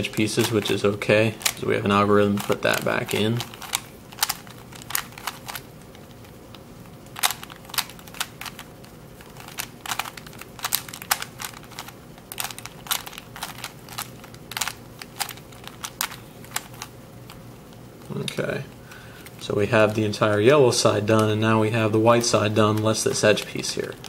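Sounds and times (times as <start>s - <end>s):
puzzle cube clicks: 0.0s - 17.4s.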